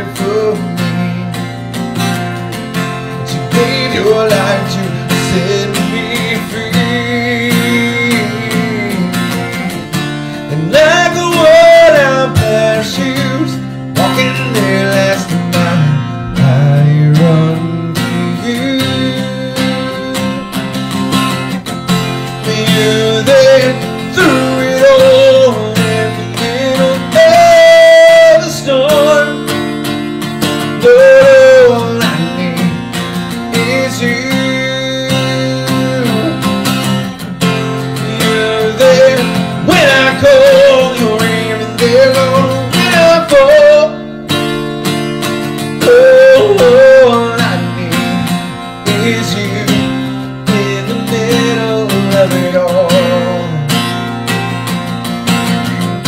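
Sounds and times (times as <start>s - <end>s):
man singing: 0.0s - 54.0s
acoustic guitar strummed: 0.0s - 56.0s.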